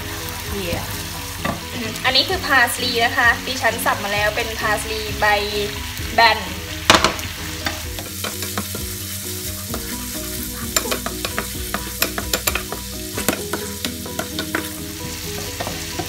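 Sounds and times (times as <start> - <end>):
food sizzling in frying pan: 0.0 - 16.0
wooden spoon clicking on pan: 10.8 - 14.7.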